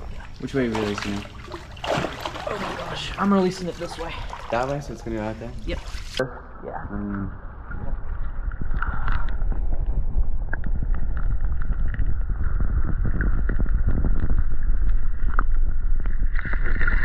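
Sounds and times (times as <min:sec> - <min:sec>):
water sloshing and splashing: 0:00.0 - 0:06.3
wind buffeting microphone: 0:07.8 - 0:16.0.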